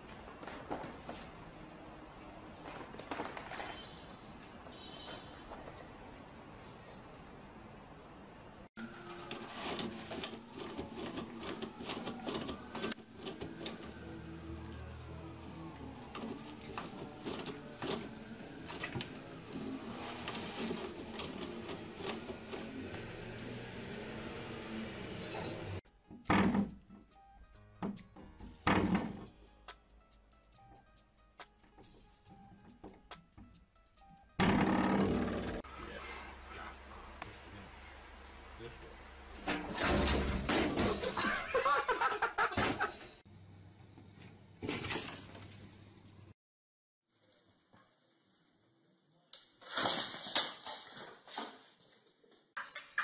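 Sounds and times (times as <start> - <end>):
people laughing loudly: 41.0 - 43.1
toilet paper rustling and tearing: 44.6 - 45.7.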